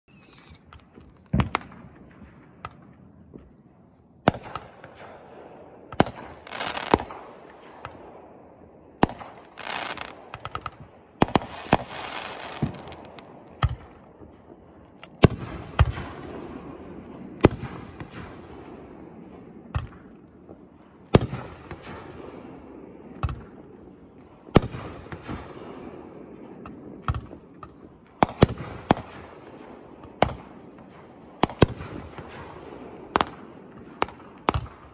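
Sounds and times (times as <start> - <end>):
fireworks crackling: 0.1 - 8.2, 9.0 - 20.6
fireworks bangs: 0.1 - 34.9.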